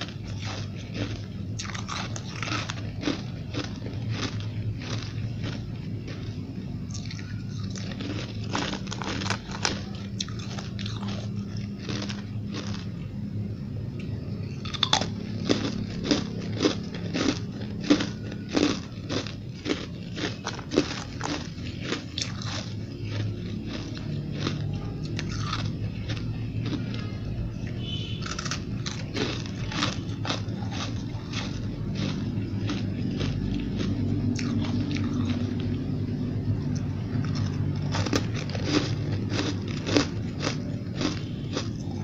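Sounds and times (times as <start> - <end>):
low steady hum: 0.0 - 42.0
crunching ice chunks: 6.9 - 11.2, 14.7 - 24.5, 27.8 - 32.8, 37.2 - 42.0.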